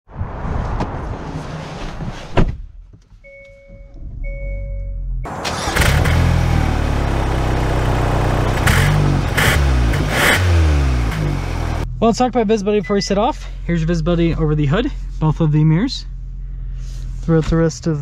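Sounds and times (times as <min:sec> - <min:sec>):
car door shutting: 0:01.9 - 0:04.0
car engine idling: 0:05.3 - 0:18.0.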